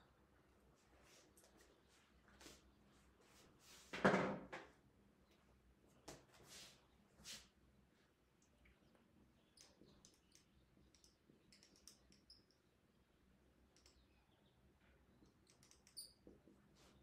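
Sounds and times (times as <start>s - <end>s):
marker squeaking on whiteboard: 15.5s - 16.4s.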